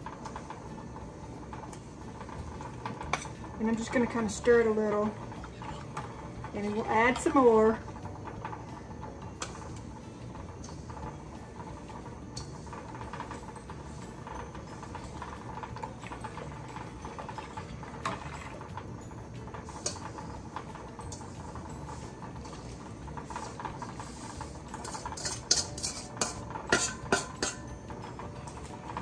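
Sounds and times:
stirring: 0:09.2 - 0:29.0
spoon scraping sugar in metal bowl: 0:21.9 - 0:27.7
spoon clinking against metal bowl: 0:24.8 - 0:27.8.

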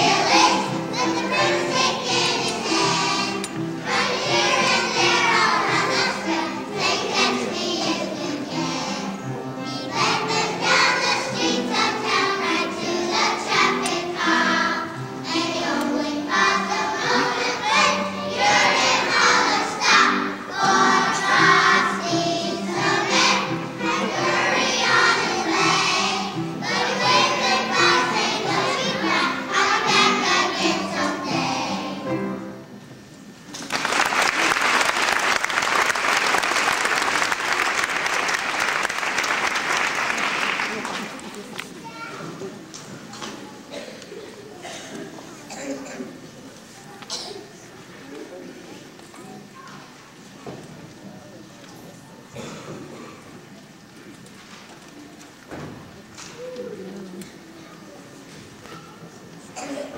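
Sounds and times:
children's choir singing: 0:00.0 - 0:41.4, 0:42.3 - 0:44.0, 0:44.6 - 0:46.4, 0:47.1 - 0:47.3, 0:52.3 - 0:53.8.

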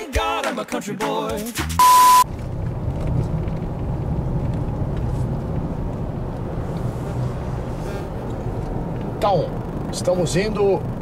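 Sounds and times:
beeping test tone: 0:01.8 - 0:02.2
car engine and tyres rumbling: 0:01.8 - 0:11.0.

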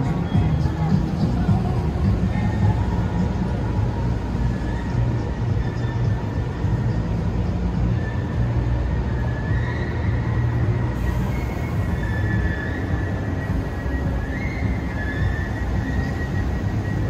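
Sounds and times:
faint high-pitched squeal: 0:00.0 - 0:17.0
train rumbling: 0:00.0 - 0:17.0.

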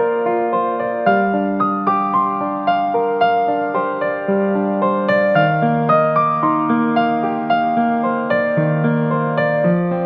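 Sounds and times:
slow piano-like keyboard music: 0:00.0 - 0:10.0.

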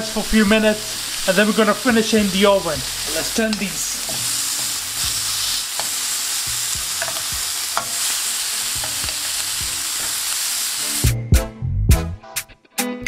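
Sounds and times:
chicken sizzling on grill pan: 0:00.0 - 0:11.1
metal tongs clicking: 0:06.7 - 0:08.1.

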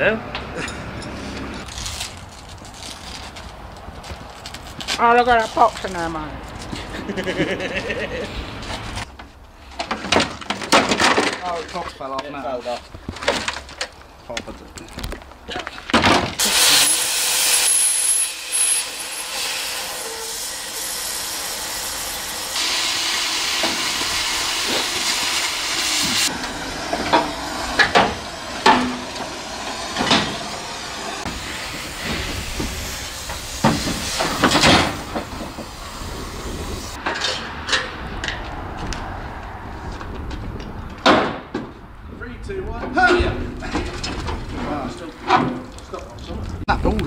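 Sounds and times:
cutting torch hissing: 0:16.4 - 0:37.0
metal clanks and knocks: 0:37.0 - 0:38.4.

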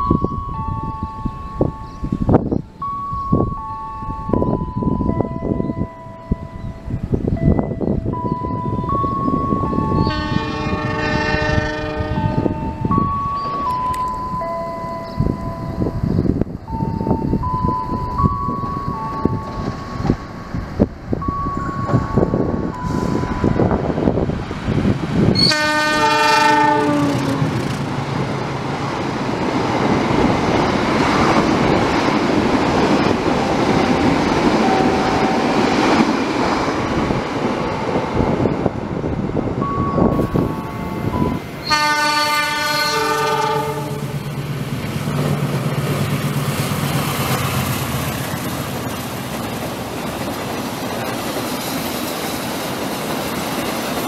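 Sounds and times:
train rumbling by: 0:00.0 - 0:54.0
train horn blasts: 0:09.9 - 0:13.0, 0:22.8 - 0:23.7, 0:25.4 - 0:27.6, 0:34.5 - 0:35.6, 0:40.2 - 0:44.2.

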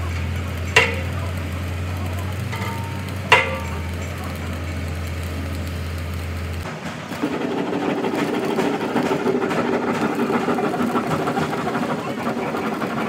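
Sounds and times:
machinery low hum: 0:00.0 - 0:13.0
rough machine noise: 0:00.0 - 0:13.0
metal clang ringing: 0:00.8 - 0:01.4, 0:02.5 - 0:04.4.

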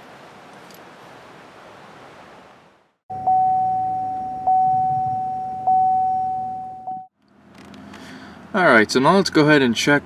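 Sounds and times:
high electronic tone: 0:03.1 - 0:07.1.

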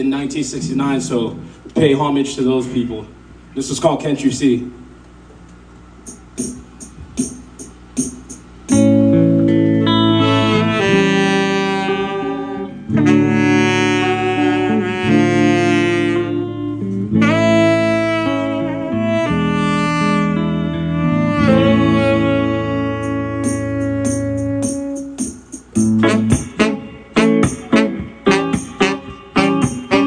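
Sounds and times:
reggae song with horns and bass: 0:06.1 - 0:30.0.

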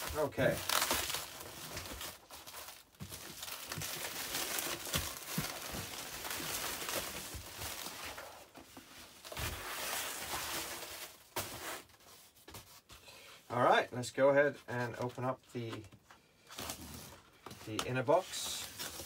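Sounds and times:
plastic wrapping crinkling and tearing: 0:00.0 - 0:11.8.

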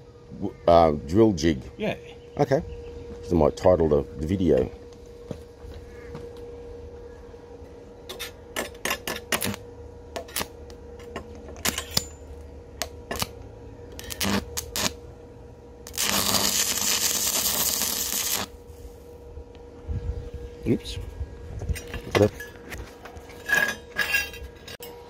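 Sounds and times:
steady hum: 0:00.0 - 0:25.0
welding hissing crackle: 0:08.9 - 0:09.6, 0:14.0 - 0:15.0, 0:15.8 - 0:19.0.

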